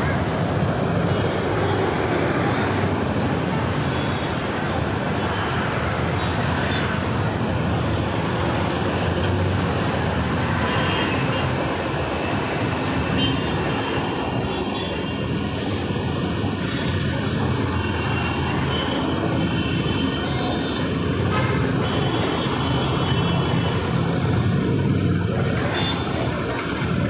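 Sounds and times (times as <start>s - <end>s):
dense road traffic: 0.0s - 27.0s.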